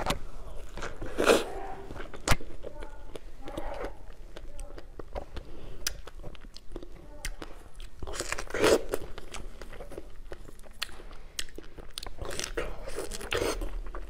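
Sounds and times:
chewing strawberry: 0.0 - 14.0
juicy bites: 0.0 - 14.0
wet mouth clicks and smacks: 4.3 - 7.5.

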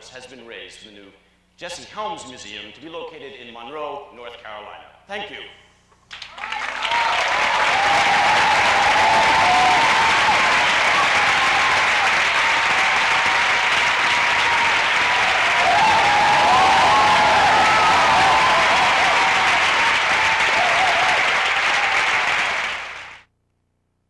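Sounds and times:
audience applauding: 6.1 - 23.3
people cheering: 6.2 - 23.2.

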